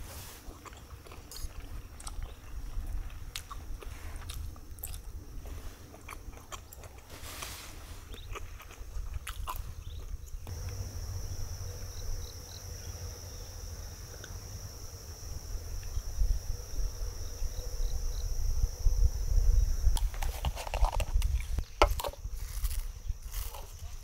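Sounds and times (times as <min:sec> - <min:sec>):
insects chirring: 0:00.6 - 0:24.0
wind rumble on microphone: 0:08.1 - 0:24.0.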